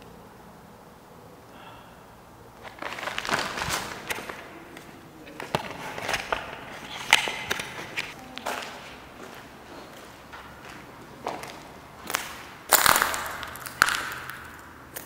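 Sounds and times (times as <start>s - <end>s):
rustling: 2.5s - 10.2s
hurried footsteps: 2.6s - 12.7s.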